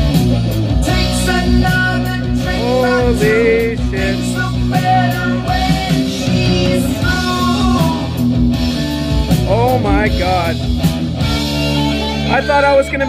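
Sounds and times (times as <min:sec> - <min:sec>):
rock music through loudspeakers: 0:00.0 - 0:13.0.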